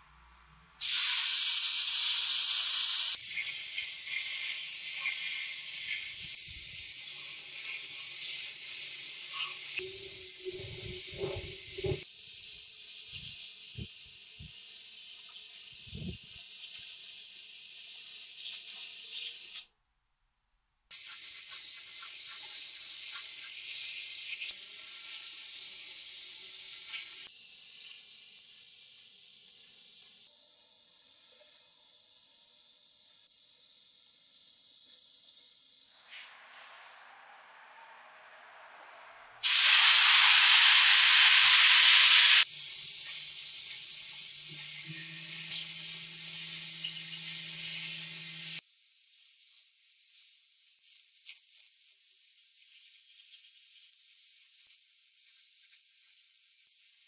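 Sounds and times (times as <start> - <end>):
paint spray gun hissing: 0.8 - 19.7, 20.9 - 30.3, 31.9 - 36.4, 39.4 - 48.6.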